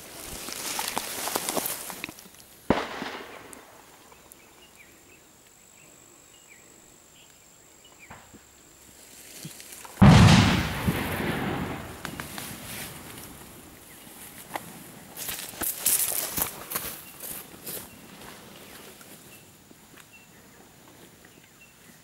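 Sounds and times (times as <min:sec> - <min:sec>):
gunshots: 0:02.7 - 0:03.9, 0:10.0 - 0:12.4
deep echoing boom: 0:10.0 - 0:12.2.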